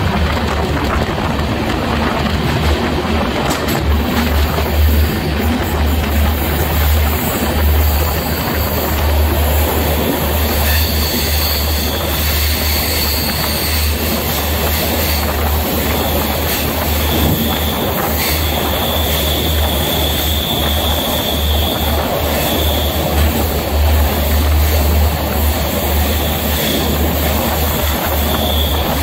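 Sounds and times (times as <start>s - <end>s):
train wheels rumbling in tunnel: 0.0s - 29.0s
thin wheel squeal: 10.4s - 14.0s, 27.9s - 29.0s.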